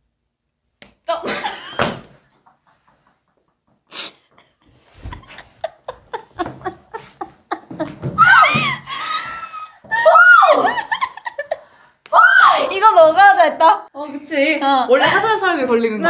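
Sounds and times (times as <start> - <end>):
women's wheezing laughter: 3.9 - 11.8.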